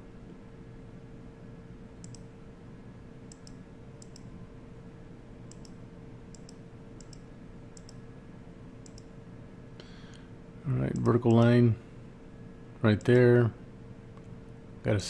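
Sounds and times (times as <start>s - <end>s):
faint steady hum: 0.0s - 15.0s
computer mouse clicking: 2.0s - 2.3s, 3.3s - 4.3s, 5.5s - 8.0s, 8.8s - 9.1s, 10.9s - 11.6s.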